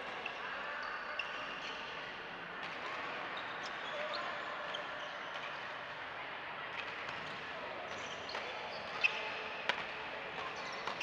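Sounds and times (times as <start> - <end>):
faint shoe squeaks: 0.2 - 2.1, 3.4 - 5.3, 7.9 - 9.5
racket hitting shuttlecock: 9.7 - 11.0.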